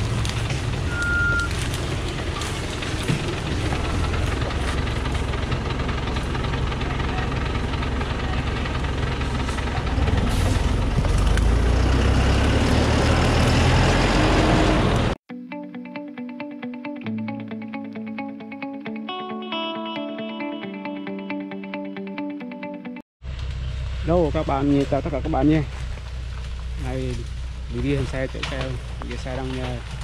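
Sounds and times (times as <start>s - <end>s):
diesel truck engine under load: 0.0s - 15.2s, 23.2s - 30.0s.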